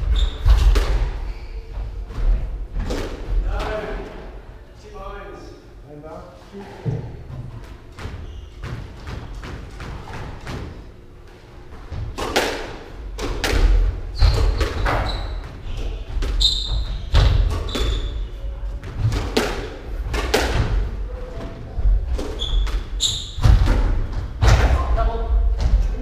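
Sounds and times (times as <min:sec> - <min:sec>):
shoes squeaking: 0:00.0 - 0:02.1, 0:07.4 - 0:10.4, 0:14.1 - 0:18.8, 0:22.1 - 0:23.6.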